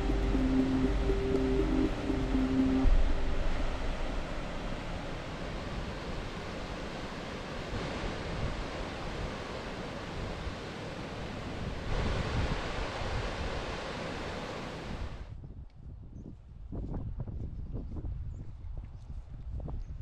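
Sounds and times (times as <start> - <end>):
river rushing over rocks: 0.0 - 15.2
wind on microphone: 0.0 - 20.0.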